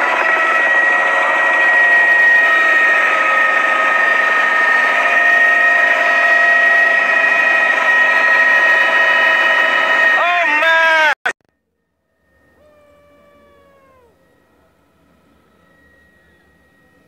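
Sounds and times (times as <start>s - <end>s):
rotor rushing noise: 0.0s - 10.5s
helicopter engine whine: 0.0s - 17.0s.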